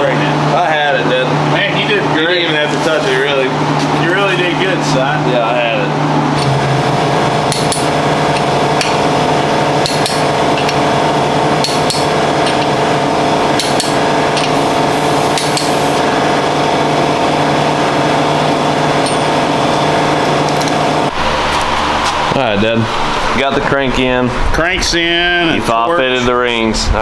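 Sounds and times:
steady hum: 0.0s - 27.0s
torque wrench clicking: 7.5s - 9.0s, 9.8s - 10.8s, 11.6s - 12.7s, 13.6s - 16.0s.

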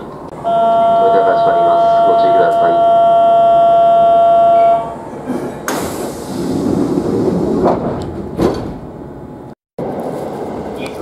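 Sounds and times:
electronic warning tone: 0.4s - 5.0s
sliding door rumble: 5.3s - 9.3s.

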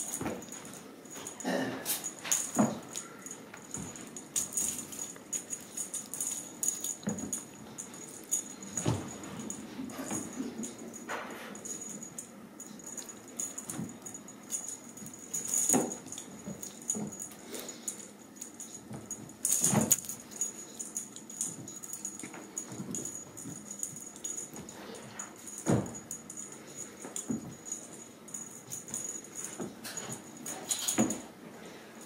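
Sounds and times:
kittens scuffling on a rug: 12.9s - 31.3s.

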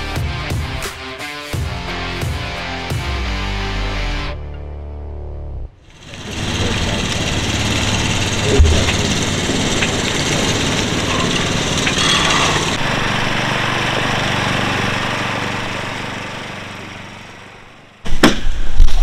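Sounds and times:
small boat motor running: 5.8s - 18.1s
engine running steadily: 5.8s - 18.2s
low thump: 8.5s - 9.0s.

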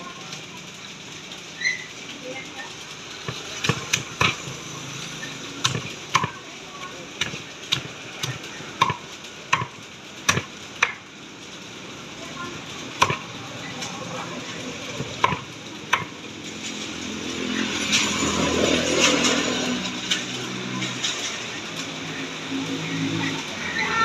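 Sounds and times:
rushing noise: 0.0s - 24.0s.

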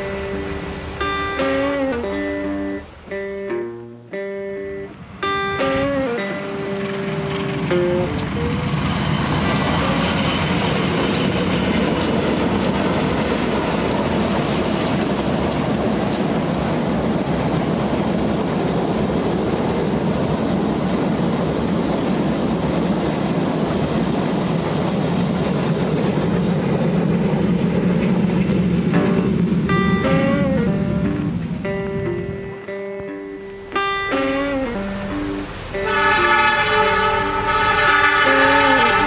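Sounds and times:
train rolling rumble: 0.0s - 2.8s, 5.0s - 39.0s
wheels clicking over rail joints: 5.2s - 31.8s.

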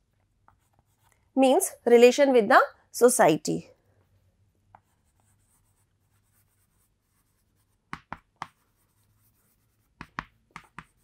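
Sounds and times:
chalk scratching on chalkboard: 4.1s - 11.0s.

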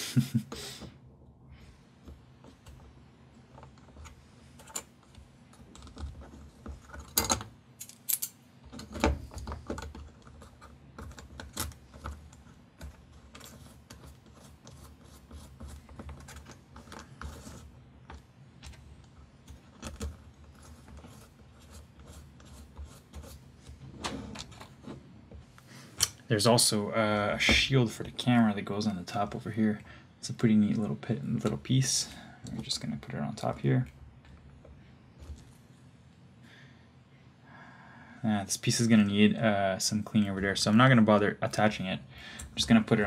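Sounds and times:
small clicks and rattles of parts: 2.0s - 14.8s.

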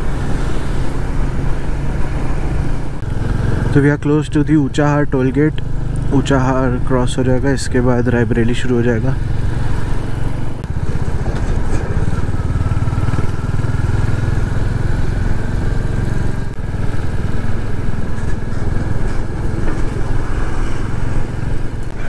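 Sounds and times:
motorcycle engine running: 0.0s - 22.0s.

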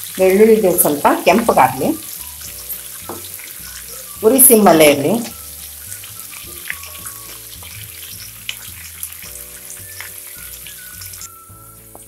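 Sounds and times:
spices sizzling in hot oil: 0.0s - 12.0s
spatula stirring: 2.4s - 4.3s, 5.2s - 11.4s.

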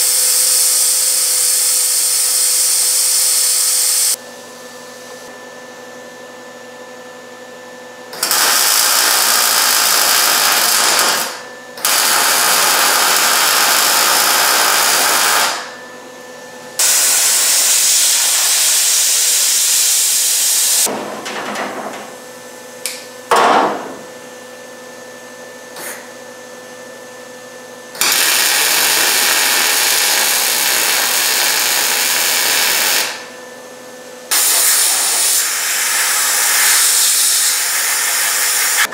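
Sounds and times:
welding arc sizzling: 0.0s - 4.2s, 8.2s - 15.7s, 16.8s - 20.9s, 28.0s - 33.3s, 34.3s - 38.9s.

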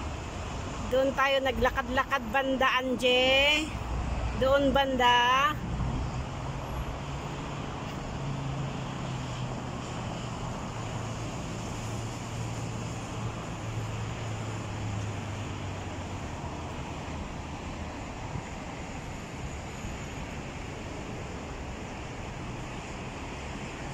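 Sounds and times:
road noise hiss: 0.0s - 23.9s.

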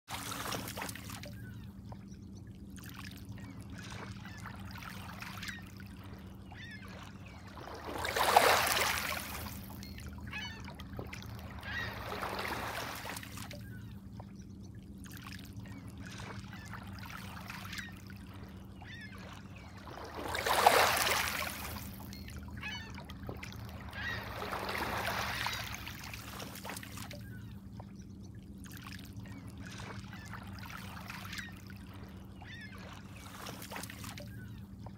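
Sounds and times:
waves lapping on pebbles: 7.7s - 9.6s, 20.0s - 21.9s.

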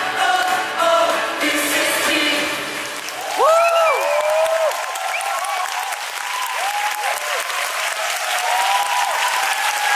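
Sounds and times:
audience clapping: 2.8s - 9.9s
whooping cheers: 3.2s - 9.9s.

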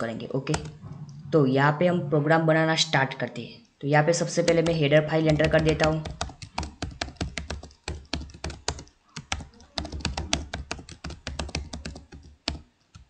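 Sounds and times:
faint low hum: 0.0s - 13.0s
keyboard typing: 0.5s - 0.8s, 4.2s - 13.0s.

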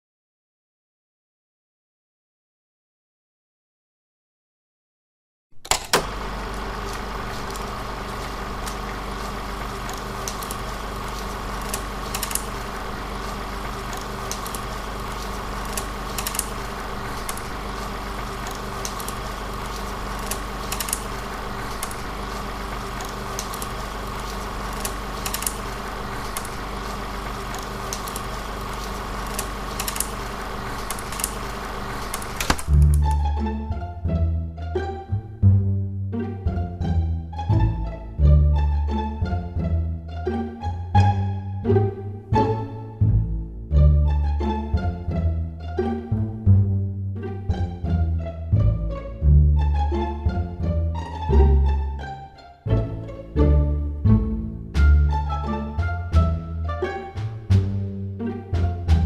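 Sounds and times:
projector whirr and hum: 5.6s - 35.2s, 36.2s - 59.0s
film crackles and pops: 6.3s - 33.0s
sharp click: 32.0s - 33.2s.

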